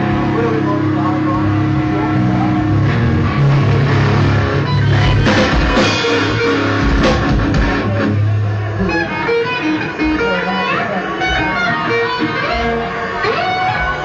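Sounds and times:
loud rock music: 0.0 - 14.0
heavy drum hits: 2.8 - 8.2.

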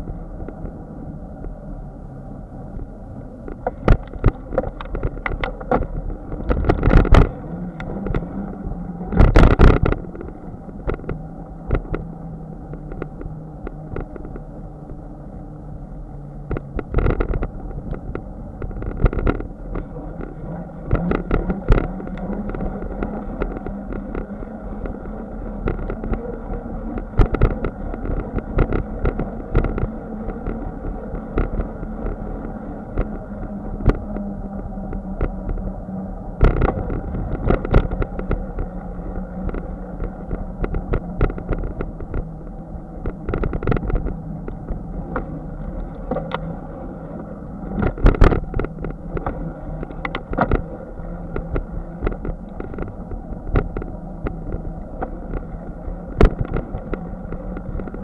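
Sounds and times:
bicycle tyre rumble: 0.0 - 58.0
wind noise: 0.0 - 58.0.

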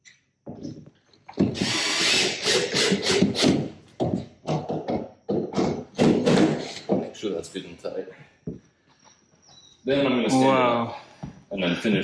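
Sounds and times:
cordless drill driving a screw: 1.6 - 3.6.

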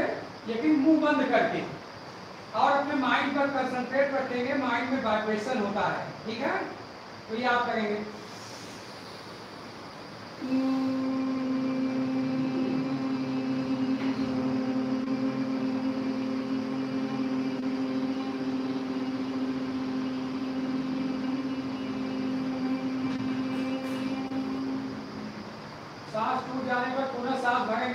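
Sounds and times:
people humming a steady drone: 0.0 - 27.9.

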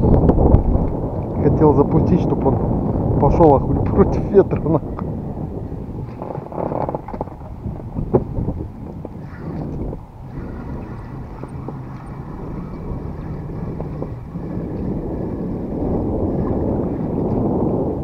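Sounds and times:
strong wind buffeting microphone: 0.0 - 18.0.

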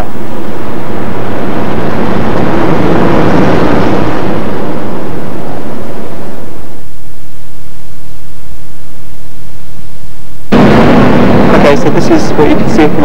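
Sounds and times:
loud rushing noise: 0.0 - 7.0, 10.4 - 13.0.

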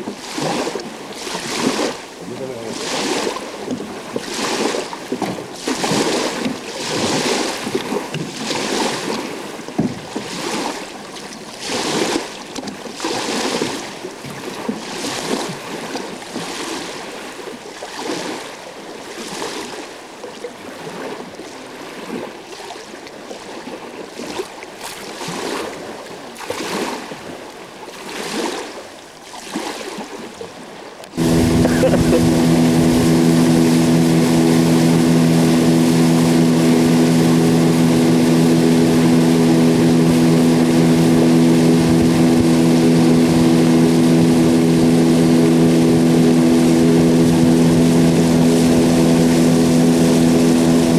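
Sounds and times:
waves slapping against boat hull: 0.0 - 50.9
wind on microphone: 31.1 - 50.9.

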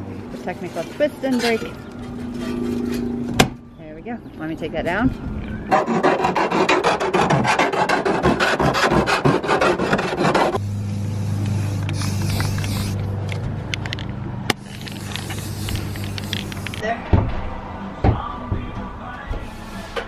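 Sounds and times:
hand file rasping on sheet steel: 5.7 - 10.6
steady low hum: 10.2 - 16.8.

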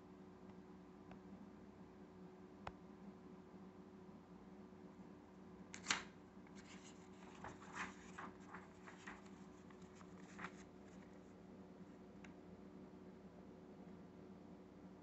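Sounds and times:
sharp paper tick: 5.8 - 11.1
paper rustling: 5.8 - 11.4.

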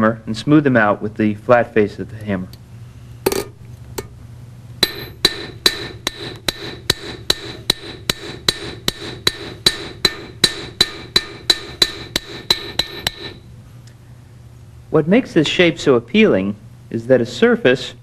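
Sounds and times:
hammer striking metal on anvil: 4.8 - 13.4.

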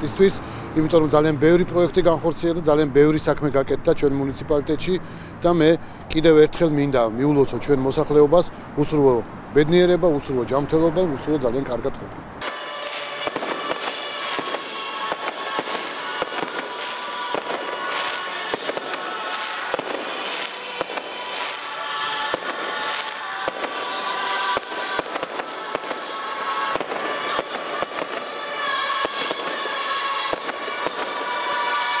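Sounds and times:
fireworks bangs and crackles: 12.4 - 32.0.

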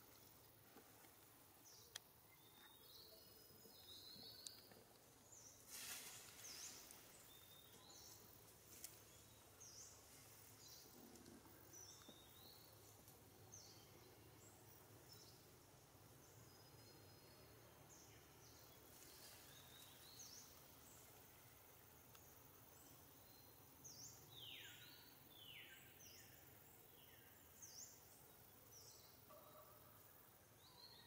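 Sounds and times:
faint clicks: 0.2 - 2.1, 4.1 - 5.1, 10.9 - 12.3, 12.9 - 13.2, 22.0 - 22.3.

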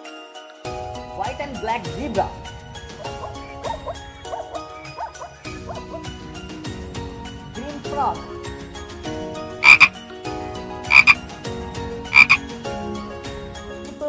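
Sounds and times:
frog croaking: 9.6 - 10.0, 10.9 - 11.2, 12.1 - 12.5.

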